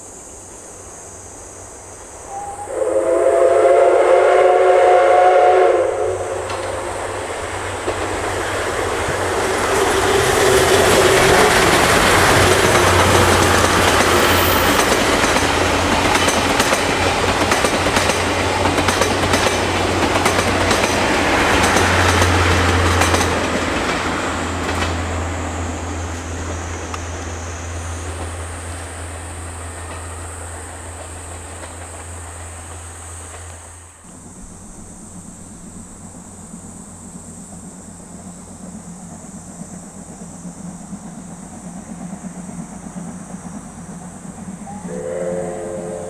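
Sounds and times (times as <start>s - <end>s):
steam locomotive passing: 0.0s - 46.0s
steam whistle blast: 2.3s - 7.2s, 9.7s - 13.4s, 44.6s - 46.0s
train wheels clicking over rail joints: 6.2s - 46.0s.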